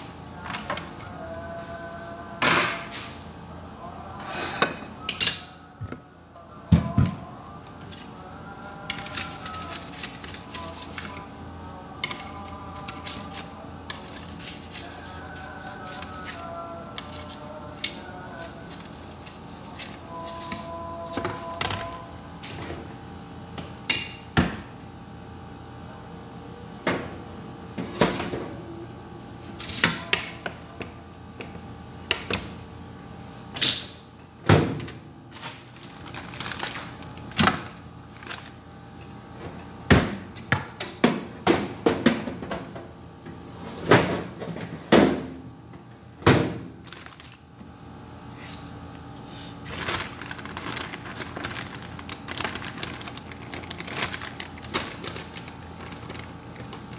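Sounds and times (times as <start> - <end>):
plastic bag rustling: 35.4 - 37.1, 46.8 - 47.4, 49.6 - 56.9.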